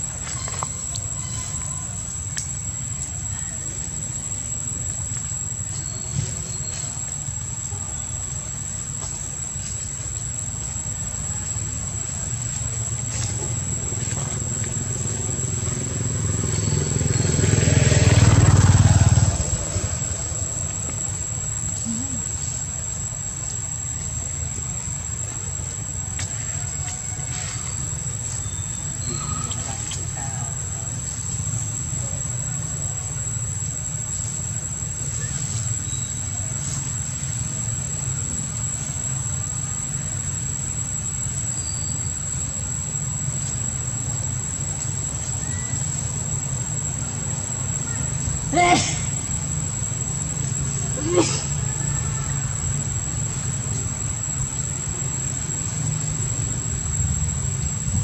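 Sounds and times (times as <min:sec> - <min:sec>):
vehicle engine passing: 0:13.3 - 0:22.2.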